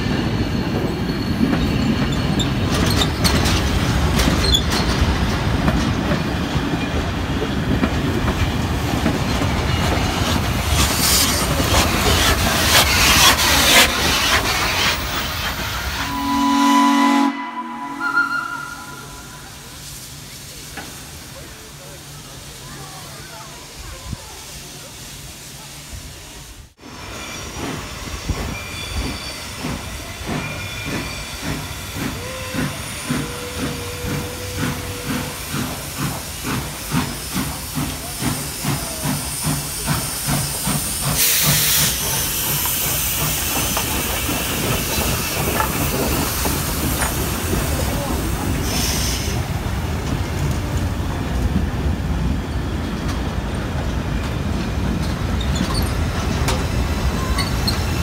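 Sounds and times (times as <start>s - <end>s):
train rail noise: 0.0s - 58.0s
steam hiss: 8.8s - 16.3s, 18.9s - 50.5s
steam locomotive exhaust beats: 27.5s - 58.0s.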